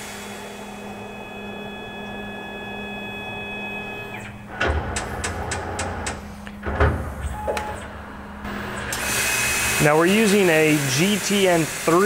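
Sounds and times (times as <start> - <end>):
lathe motor whine: 0.0 - 6.3, 7.4 - 12.0
heavy clunks: 4.5 - 7.9.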